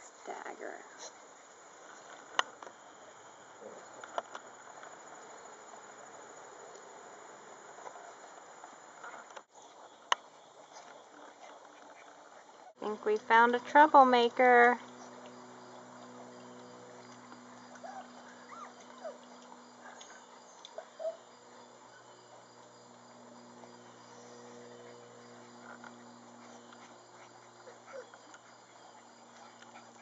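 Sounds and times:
puppies squeaking and whimpering: 0:17.5 - 0:21.3, 0:26.4 - 0:30.0.

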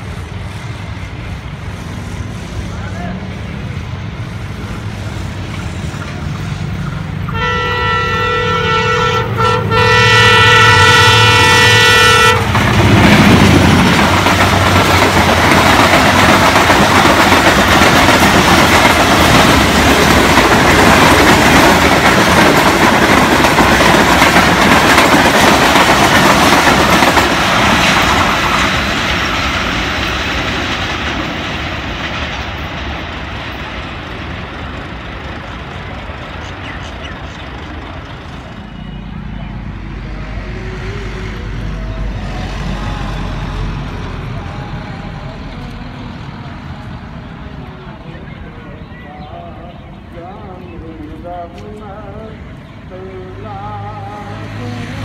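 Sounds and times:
locomotive engine drone: 0:00.0 - 0:55.0
train wheels on rails: 0:00.0 - 0:55.0
train horn blast: 0:07.3 - 0:12.6.

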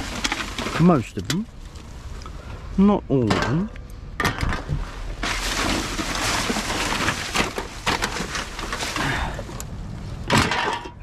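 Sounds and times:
crinkling and rustling rubbish: 0:00.0 - 0:02.5, 0:03.2 - 0:11.0
knocks and clatters: 0:10.3 - 0:11.0.

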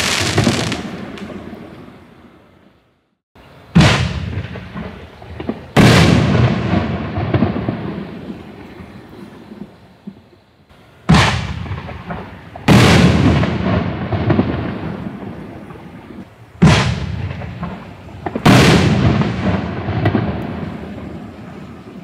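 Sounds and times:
firework shell booming overhead: 0:00.0 - 0:01.6, 0:03.7 - 0:08.8, 0:11.1 - 0:15.8, 0:16.6 - 0:21.8.

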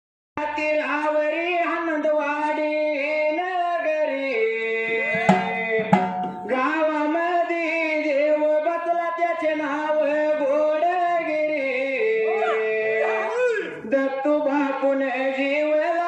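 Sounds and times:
men singing folk song: 0:00.4 - 0:16.0
drum beats: 0:04.9 - 0:07.0.

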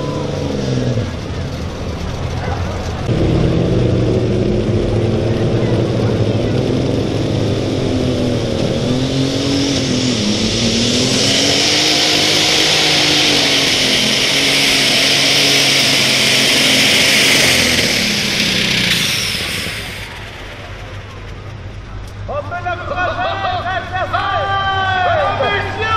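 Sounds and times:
diesel engine running hard: 0:00.0 - 0:25.9.

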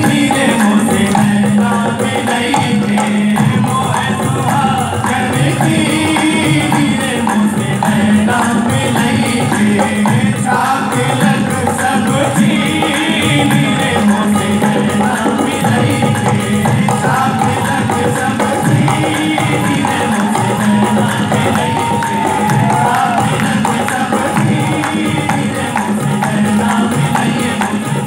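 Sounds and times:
group of men singing: 0:00.0 - 0:28.0
keyboard accompaniment: 0:00.0 - 0:28.0
steady drum beat: 0:00.0 - 0:28.0.

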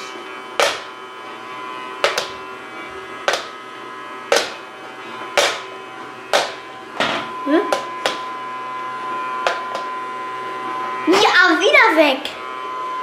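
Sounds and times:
toy vacuum motor humming: 0:00.0 - 0:13.0.

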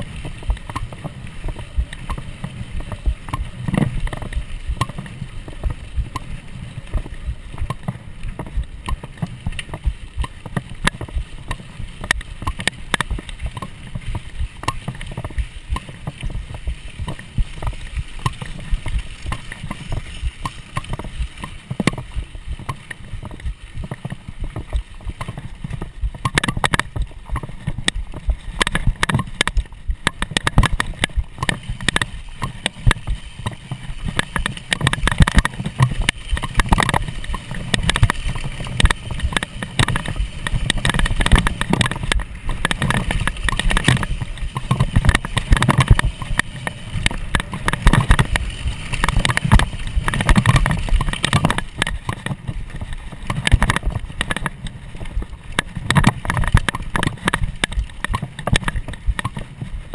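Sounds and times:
bike rattling over trail: 0:00.0 - 0:59.9.

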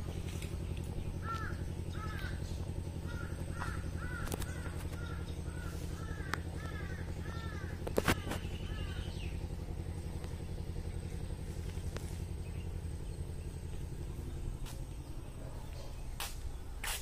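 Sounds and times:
low motor rumble: 0:00.0 - 0:17.0
crow cawing: 0:01.2 - 0:09.2.

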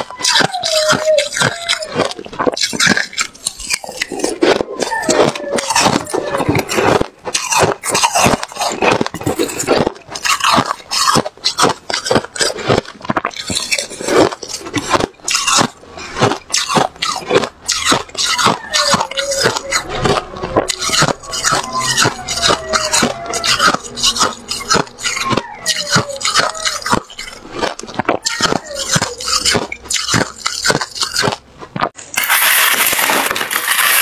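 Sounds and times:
chewing crunchy frost: 0:00.0 - 0:34.0
metal spoon scooping frost: 0:32.1 - 0:34.0.

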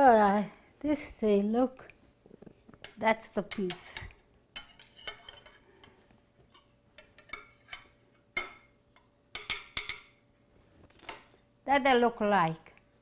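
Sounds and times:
utensil clinking against a dish: 0:02.8 - 0:10.2.

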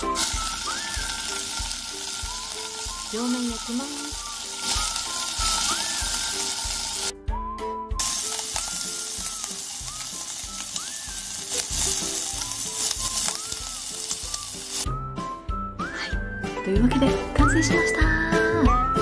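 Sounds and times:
food sizzling in a frying pan: 0:00.0 - 0:07.1, 0:08.0 - 0:14.9
background music with steady beat: 0:00.0 - 0:19.0.

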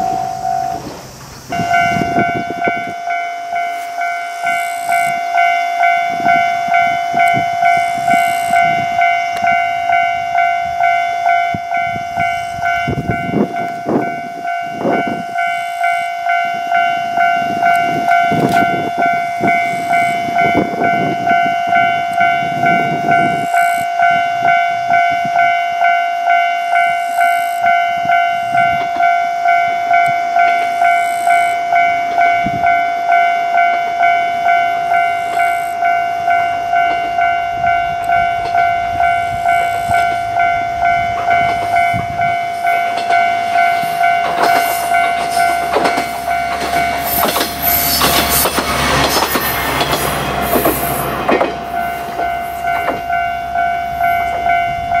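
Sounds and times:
level crossing bell ringing: 0:00.0 - 0:00.8, 0:01.6 - 0:50.2, 0:51.7 - 0:55.0
wheels clattering over rail joints: 0:00.0 - 0:02.9, 0:38.1 - 0:55.0
railcar engine rumble: 0:00.0 - 0:55.0.

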